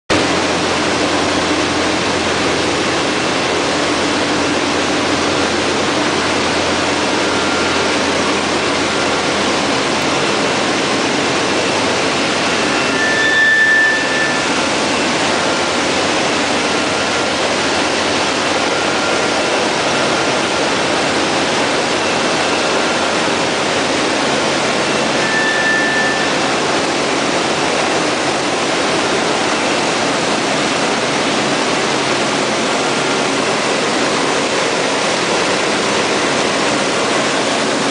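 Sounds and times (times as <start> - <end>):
machine line rushing noise: 0.1 - 37.9
high squeal: 6.0 - 32.2.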